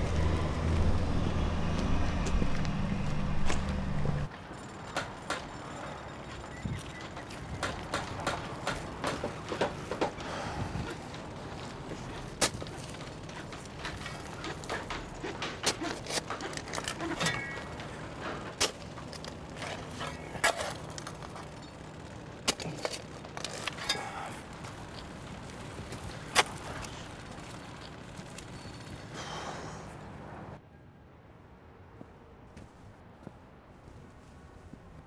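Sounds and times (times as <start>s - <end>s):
steady background hum: 0.0s - 35.0s
shovel digging gravelly soil: 10.6s - 29.4s.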